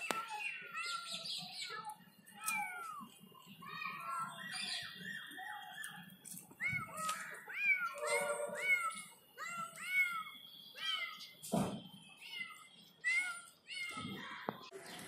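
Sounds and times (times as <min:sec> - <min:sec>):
kittens mewing: 0:06.6 - 0:10.3.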